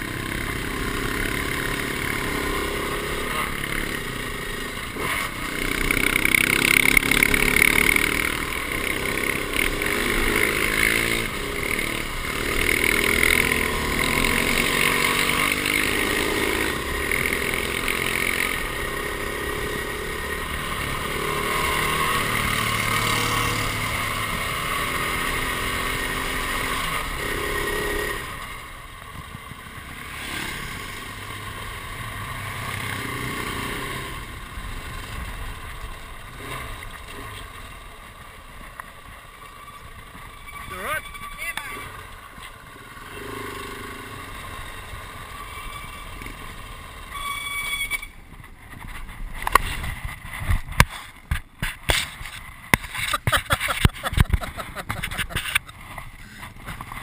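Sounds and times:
motorcycle engine pulling: 0:39.5 - 0:57.0.

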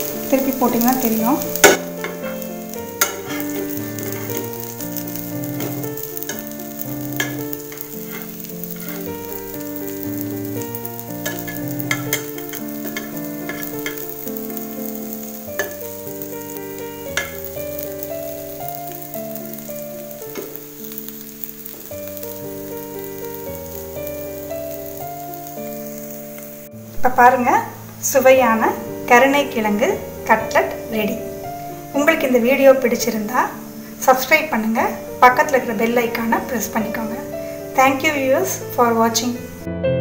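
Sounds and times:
food sizzling in oil: 0:00.0 - 0:39.7
slow background music: 0:00.0 - 0:40.0
metal spatula clicking on pan: 0:07.2 - 0:09.0.

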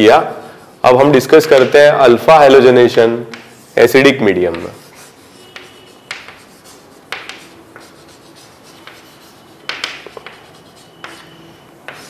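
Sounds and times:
writing scratches on a board: 0:03.3 - 0:12.0.

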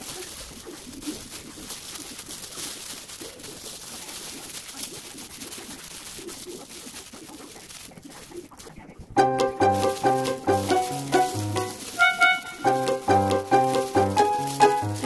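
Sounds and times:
bamboo mat rustling and clicking: 0:00.0 - 0:08.8
plastic gloves crinkling: 0:00.0 - 0:15.0.

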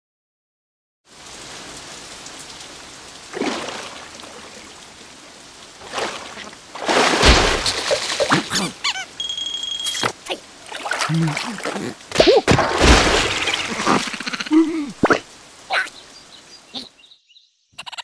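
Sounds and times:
rain falling: 0:01.1 - 0:17.0
splashing: 0:03.2 - 0:15.9
loud thump: 0:07.2 - 0:07.7, 0:12.5 - 0:13.4
whistle-like tone: 0:09.2 - 0:10.0
short sliding squeaks: 0:09.2 - 0:10.2.

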